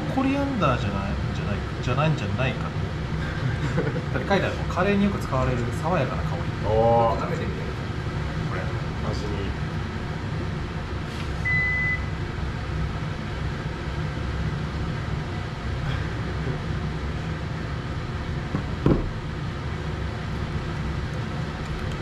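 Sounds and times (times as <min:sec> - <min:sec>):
ventilation fan humming: 0:00.0 - 0:22.0
high electronic beep: 0:11.5 - 0:12.1.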